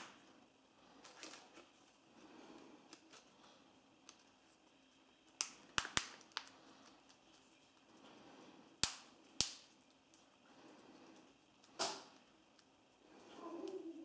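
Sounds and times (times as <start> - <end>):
plastic crackle: 5.2 - 8.1.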